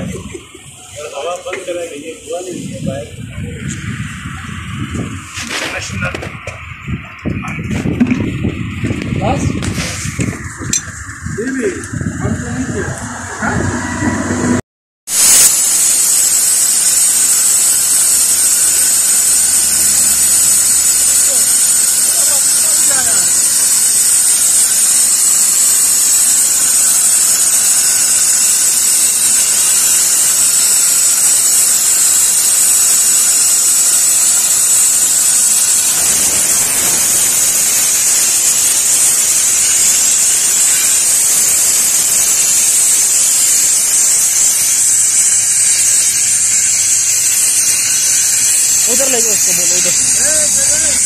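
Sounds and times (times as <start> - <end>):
air blow gun hissing: 0.0 - 7.1, 7.8 - 51.0.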